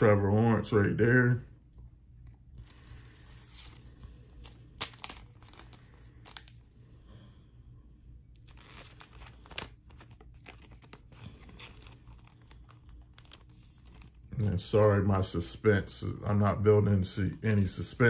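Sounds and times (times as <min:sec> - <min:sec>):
cards and plastic sleeve rustling: 0:02.2 - 0:06.8, 0:08.2 - 0:16.1, 0:16.8 - 0:18.0.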